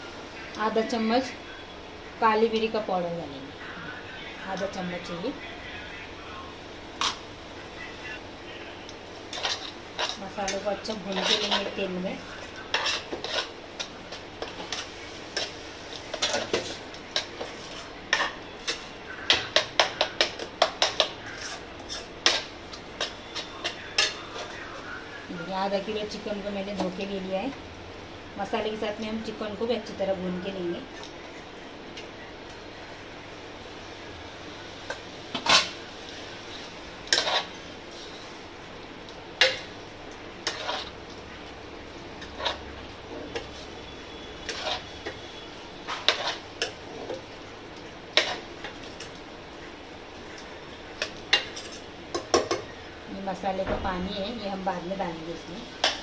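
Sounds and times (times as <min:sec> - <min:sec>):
spices frying in oil: 0:00.0 - 0:56.0
spoon scraping a pan: 0:09.3 - 0:24.6, 0:36.5 - 0:38.3, 0:40.4 - 0:41.0, 0:42.2 - 0:47.2, 0:48.2 - 0:49.2, 0:51.0 - 0:52.7.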